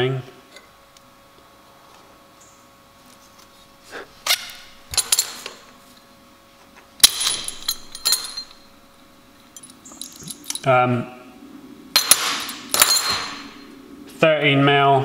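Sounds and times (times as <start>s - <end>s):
small steel parts clinking: 4.3s - 5.7s, 7.0s - 10.7s, 12.0s - 13.7s.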